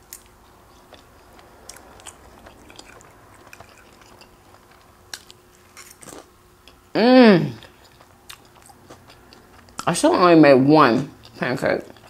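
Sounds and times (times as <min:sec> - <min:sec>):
person chewing: 0:00.0 - 0:06.9, 0:07.6 - 0:09.9.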